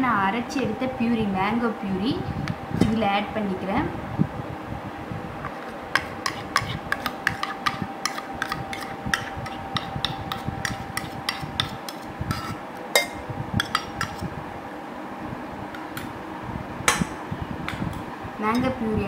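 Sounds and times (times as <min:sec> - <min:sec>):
spoon clinking and scraping metal bowl: 0:06.0 - 0:14.2.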